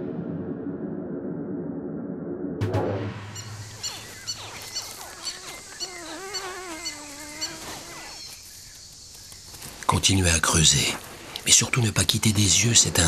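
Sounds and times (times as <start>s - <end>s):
wavering hatchling call: 3.3s - 8.4s
crocodile hatchlings squeaky yelps: 3.4s - 8.2s.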